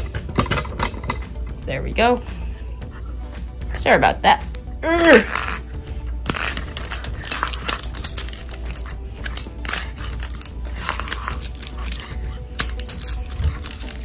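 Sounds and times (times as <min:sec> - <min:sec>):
plastic wrapping crinkling: 0:06.2 - 0:14.0.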